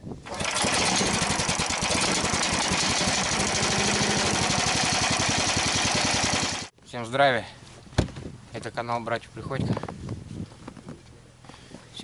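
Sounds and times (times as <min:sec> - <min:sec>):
small engine starting and running: 0:00.2 - 0:06.7.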